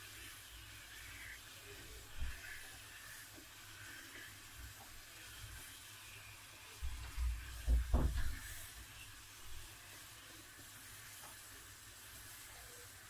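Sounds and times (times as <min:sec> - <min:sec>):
syrup boiling with faint hiss: 0:00.0 - 0:13.0
low thumps and knocks: 0:07.6 - 0:08.4.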